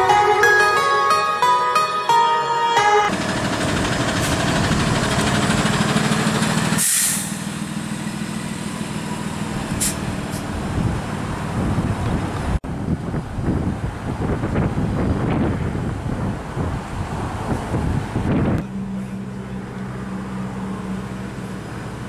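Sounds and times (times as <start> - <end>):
truck engine passing close: 0.0 - 22.0
air brakes hissing: 6.6 - 7.6, 9.7 - 10.5.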